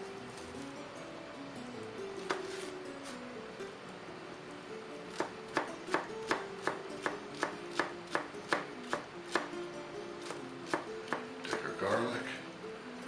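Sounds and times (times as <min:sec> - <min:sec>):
knife chopping on cutting board: 0:05.1 - 0:09.6, 0:10.2 - 0:11.7.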